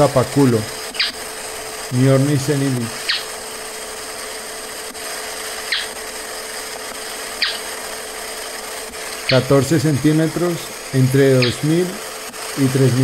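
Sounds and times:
bird calling sharp falling notes: 0:05.7 - 0:05.9, 0:07.4 - 0:07.7.

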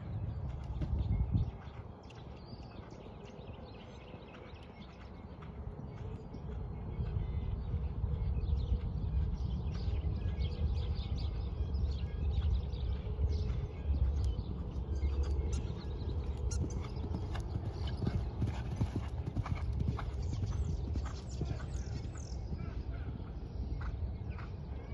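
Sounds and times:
horse hoofbeats cantering on sand: 0:00.0 - 0:24.9.

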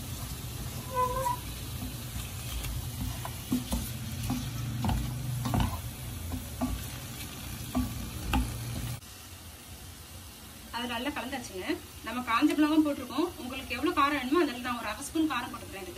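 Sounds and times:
frying sizzle: 0:00.0 - 0:15.9
spatula scraping a frying pan: 0:00.1 - 0:09.0.

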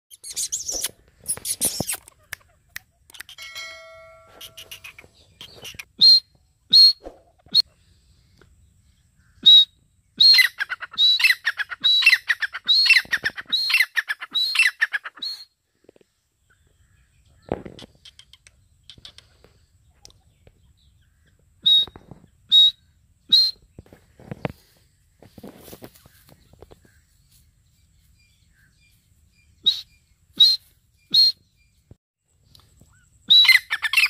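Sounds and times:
francolin calling: 0:00.1 - 0:07.8, 0:32.5 - 0:34.0.

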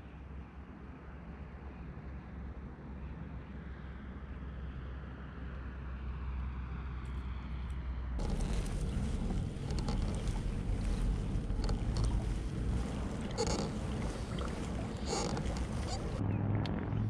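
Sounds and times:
water moving along a hull: 0:08.2 - 0:17.0
wind buffeting microphone: 0:08.2 - 0:17.0.

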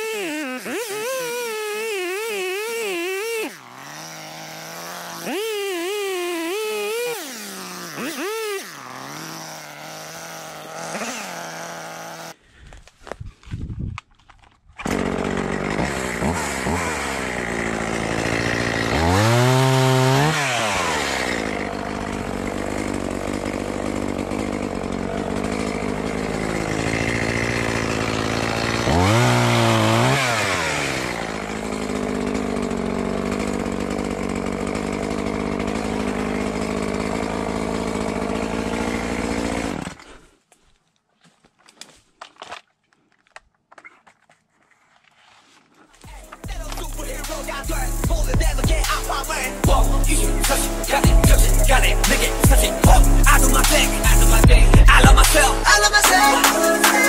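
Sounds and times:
chainsaw cutting branches: 0:00.0 - 0:13.1, 0:14.6 - 0:40.4, 0:45.7 - 0:57.0.

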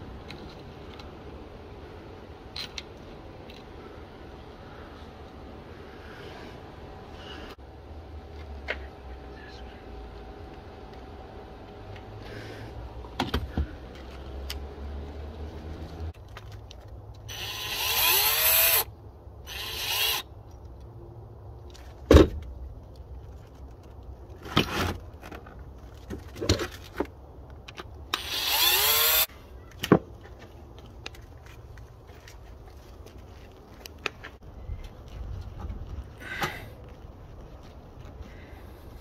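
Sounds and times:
cordless power drill whirring: 0:17.3 - 0:18.9, 0:19.5 - 0:20.2, 0:28.1 - 0:29.3.

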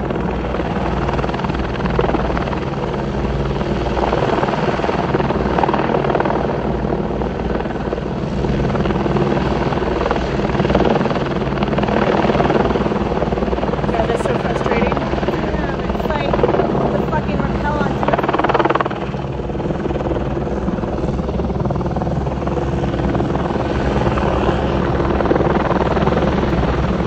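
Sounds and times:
helicopter hovering overhead: 0:00.0 - 0:27.0.

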